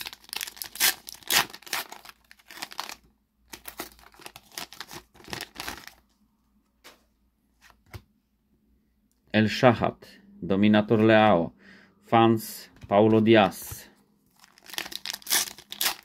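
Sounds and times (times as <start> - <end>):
plastic wrapper tearing and crinkling: 0.0 - 6.1, 14.3 - 16.0.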